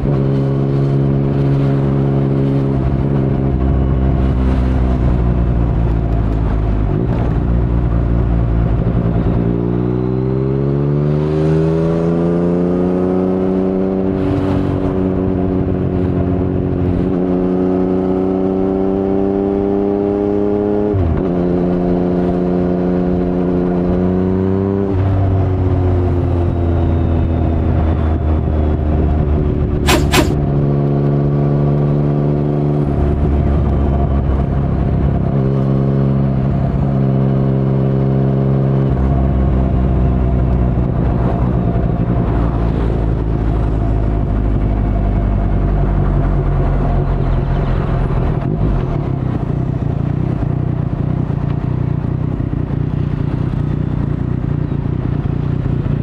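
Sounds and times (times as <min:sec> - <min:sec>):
motorcycle engine running: 0:41.1 - 0:56.0.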